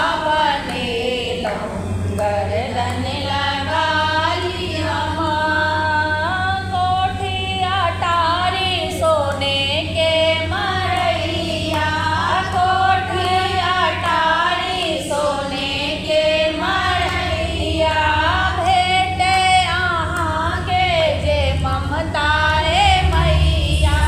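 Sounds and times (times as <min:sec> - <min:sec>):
women singing in unison: 0:00.0 - 0:24.0.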